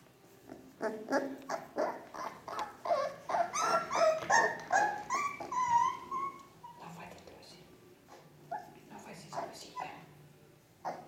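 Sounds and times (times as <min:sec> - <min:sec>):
puppy whining: 0:00.4 - 0:07.0, 0:08.1 - 0:10.2, 0:10.8 - 0:11.0.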